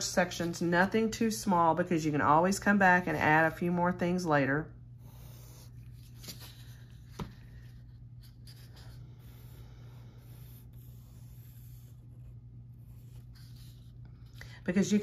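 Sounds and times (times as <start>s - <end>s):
steady low hum: 0.0s - 15.0s
pencil scratching on paper: 8.2s - 14.0s.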